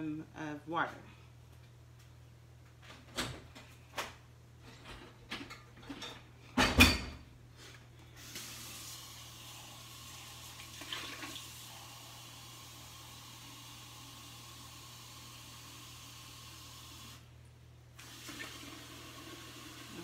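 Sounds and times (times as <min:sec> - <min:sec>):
water running into a cup: 0:08.2 - 0:17.2, 0:18.0 - 0:20.0.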